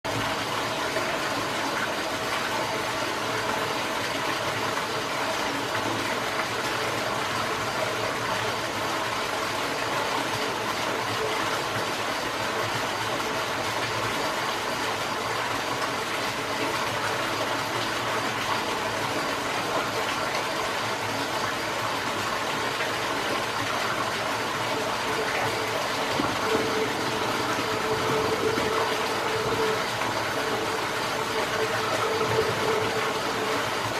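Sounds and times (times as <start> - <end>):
aquarium filter water noise: 0.0 - 33.9
faint hum: 23.0 - 33.9
steady tone: 24.5 - 33.9.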